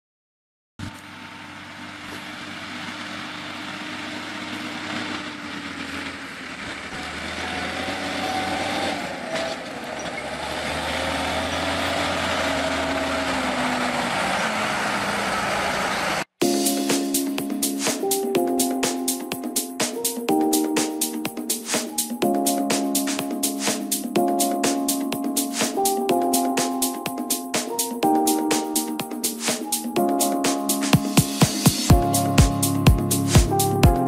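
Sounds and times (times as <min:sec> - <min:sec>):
tractor diesel engine under load: 0:00.9 - 0:16.4.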